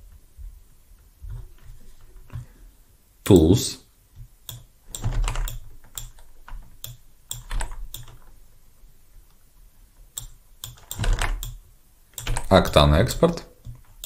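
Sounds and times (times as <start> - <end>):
computer mouse and keyboard clicking: 4.4 - 8.3, 10.2 - 11.6, 12.2 - 12.8.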